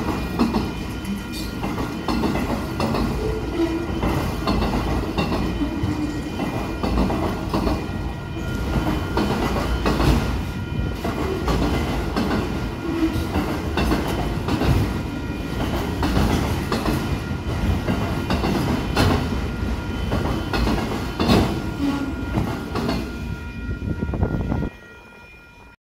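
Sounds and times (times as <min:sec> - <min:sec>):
wheels clicking over rail joints: 0:00.0 - 0:07.9, 0:10.9 - 0:23.1
freight train wheels rumbling: 0:00.0 - 0:25.7
level-crossing bell ringing: 0:00.0 - 0:25.8.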